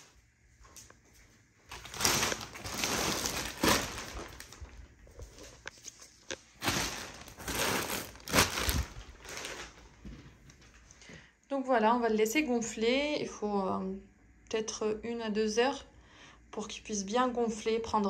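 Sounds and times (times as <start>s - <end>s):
plastic wrapping rustling and tearing: 1.7s - 10.8s.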